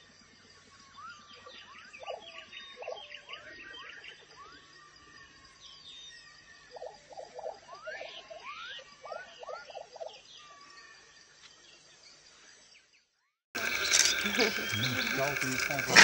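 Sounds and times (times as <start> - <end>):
birds chirping and chattering: 13.6 - 16.0.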